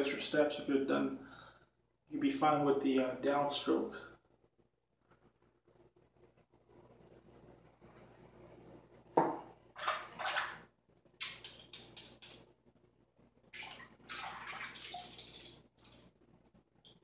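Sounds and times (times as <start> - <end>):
water splashing in sink: 9.7 - 12.4, 13.5 - 16.1.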